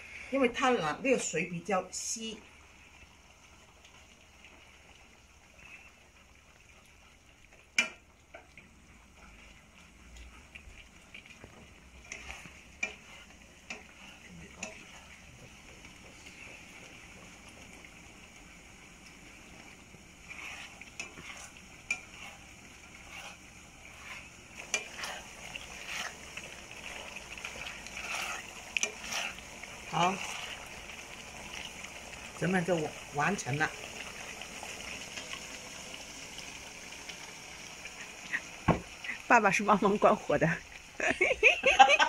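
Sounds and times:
spatula stirring food in pan: 0.4 - 42.0
sauce bubbling hiss: 1.8 - 42.0
spatula clacking against pan: 7.7 - 8.6, 12.0 - 14.9, 20.4 - 26.2, 27.4 - 29.4
spatula tapping against pan: 7.8 - 8.0.

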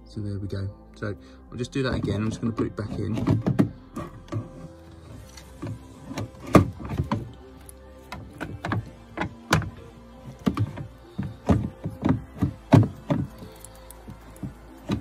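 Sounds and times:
plastic valve knocking and clattering: 2.0 - 4.5, 10.4 - 13.4.

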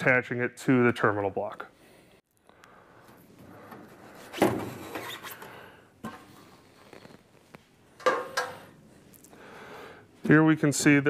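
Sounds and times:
metal cover clanking: 8.0 - 8.6.

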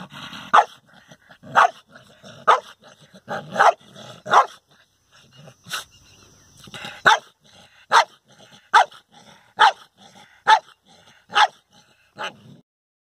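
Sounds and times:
dog barking: 0.5 - 0.8, 1.5 - 1.8, 2.4 - 4.6, 7.0 - 7.3, 7.9 - 9.0, 9.6 - 11.6, 12.2 - 12.4.

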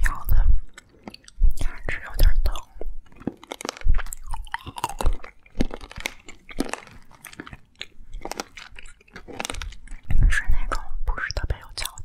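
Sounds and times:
crunchy candy being chewed: 0.0 - 12.0.

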